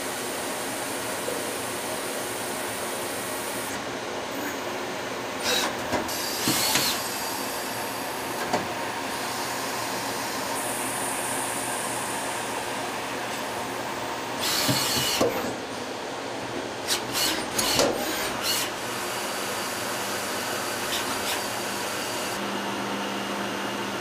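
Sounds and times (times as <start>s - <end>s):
lathe machine hum and hiss: 0.0s - 24.0s
short sharp machining noises: 14.4s - 15.2s.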